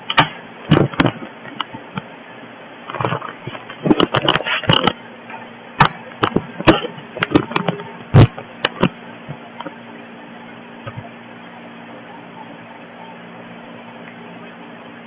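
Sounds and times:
sharp clicks and knocks: 0.0s - 2.1s, 2.9s - 5.0s, 5.8s - 9.8s
faint steady hum: 0.0s - 15.0s.

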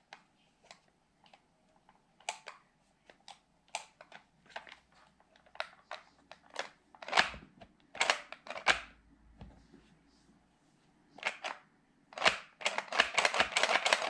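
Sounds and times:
hard plastic toy clicks: 8.0s - 8.9s, 12.2s - 14.0s.

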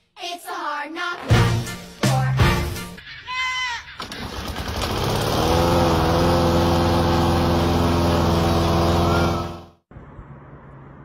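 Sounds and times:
lawn mower engine running: 4.0s - 9.8s.

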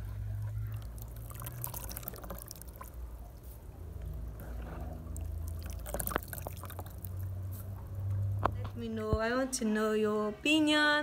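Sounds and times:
coconut milk dripping into basin: 0.4s - 4.4s, 5.0s - 8.4s.

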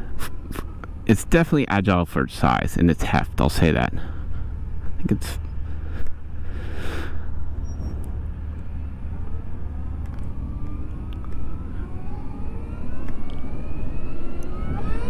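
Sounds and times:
wind rumble on microphone: 7.4s - 15.0s
electric motor whining: 7.6s - 15.0s.

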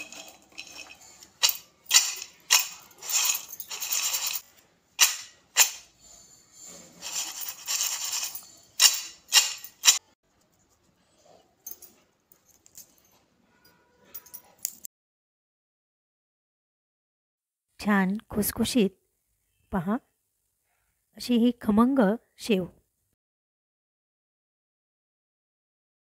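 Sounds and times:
peanuts rattling on a steel plate: 0.0s - 4.4s, 7.0s - 10.1s.

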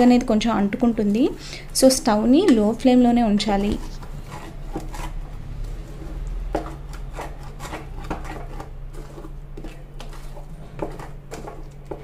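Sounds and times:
spatula scraping paste in a pan: 3.4s - 12.0s.

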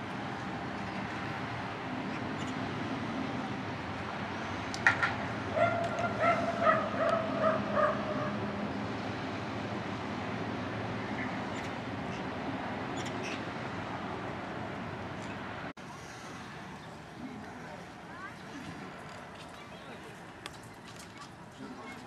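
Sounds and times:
dog yapping: 5.6s - 8.3s.

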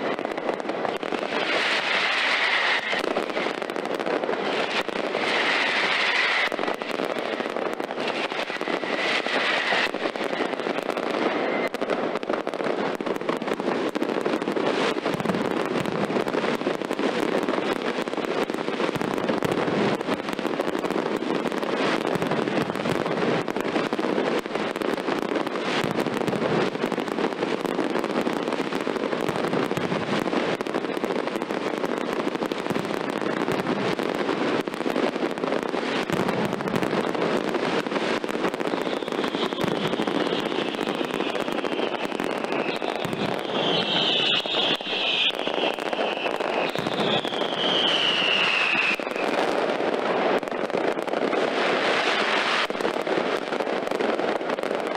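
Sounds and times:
firecracker bangs rattling: 32.6s - 49.5s
high whistle: 42.5s - 49.2s.

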